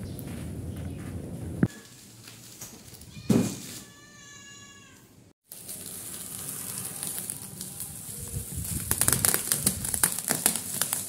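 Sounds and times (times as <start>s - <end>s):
box cutter slitting bubble wrap: 5.5s - 11.0s.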